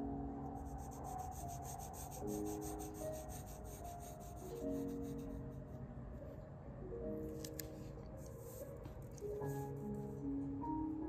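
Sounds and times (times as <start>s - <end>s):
soft background music: 0.0s - 11.0s
pencil scratching on paper: 0.6s - 5.5s.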